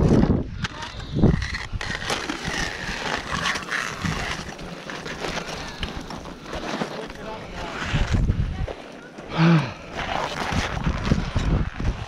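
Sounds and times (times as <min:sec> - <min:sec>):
ice tools striking ice: 0:01.0 - 0:07.8
crampons crunching on ice: 0:01.4 - 0:07.8
clothing and gear rustling: 0:01.8 - 0:12.0.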